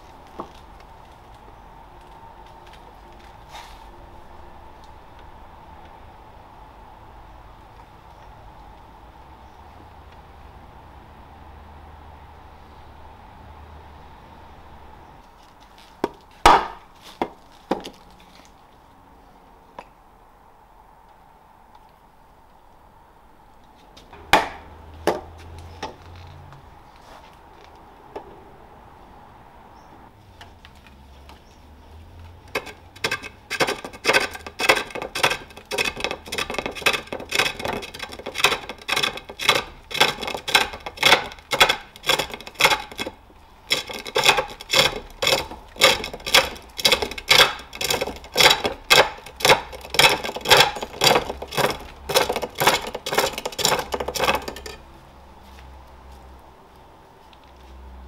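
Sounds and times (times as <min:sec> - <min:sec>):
hook tool cutting wood on lathe: 0:32.4 - 0:54.7.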